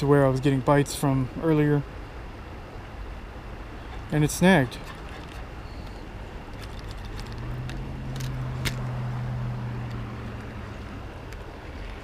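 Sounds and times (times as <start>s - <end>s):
passing vehicle engine hum: 2.9s - 12.0s.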